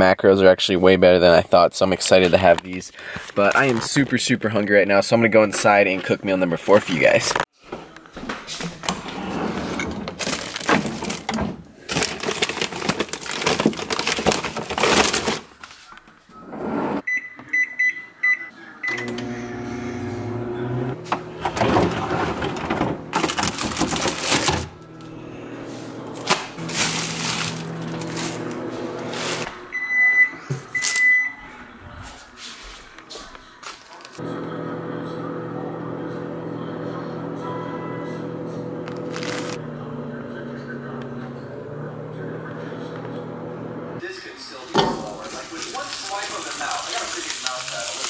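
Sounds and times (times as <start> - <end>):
rustling and handling noise: 2.0 - 4.4, 6.8 - 16.2, 25.7 - 29.7, 32.0 - 34.2, 38.8 - 39.6, 44.7 - 48.0
microwave keypad beeps: 17.1 - 19.1, 29.7 - 31.4
long microwave beeps: 17.1 - 19.5, 29.7 - 31.4
microwave oven humming: 18.9 - 30.3, 34.2 - 44.0.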